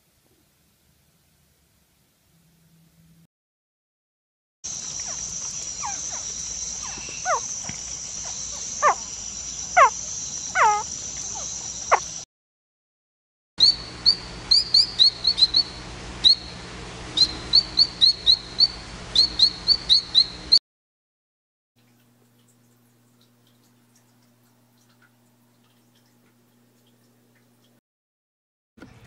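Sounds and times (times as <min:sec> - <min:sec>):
frog whistled calls: 0:04.7 - 0:12.2, 0:13.6 - 0:16.5, 0:17.2 - 0:20.6
high insect drone: 0:04.7 - 0:12.2
frog short high chirps: 0:05.0 - 0:12.2.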